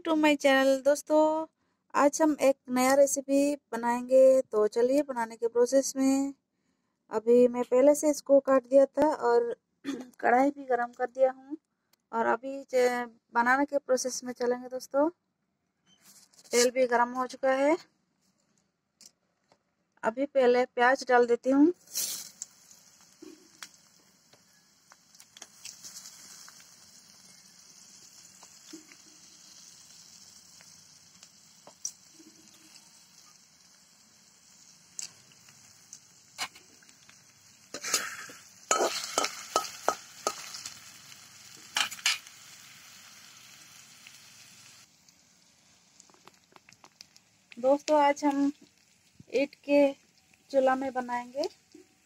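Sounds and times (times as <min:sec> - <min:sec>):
onions sizzling in oil: 0:21.8 - 0:52.0
spatula scraping a pan: 0:37.7 - 0:40.9.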